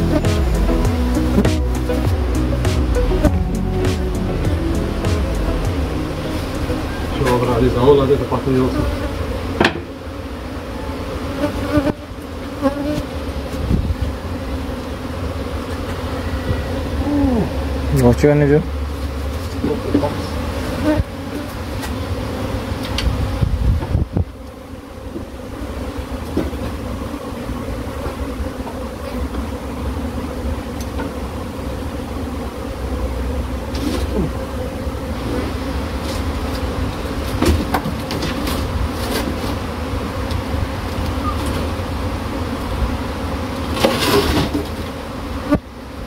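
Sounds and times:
bees buzzing: 0.0s - 46.0s
knocks and rustles: 37.2s - 39.6s.

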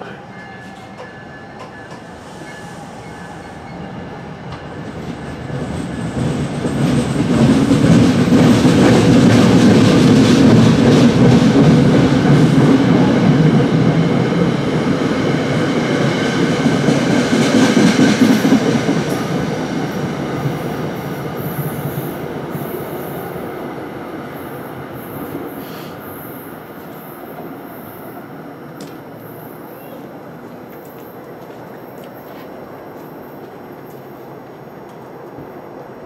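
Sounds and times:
train wheels rolling on rails: 0.0s - 36.0s.

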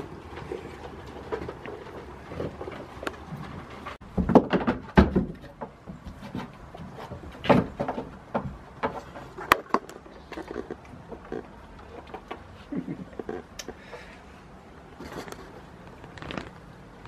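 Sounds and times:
knocks and thumps: 0.2s - 9.9s
rustling: 5.3s - 17.0s.

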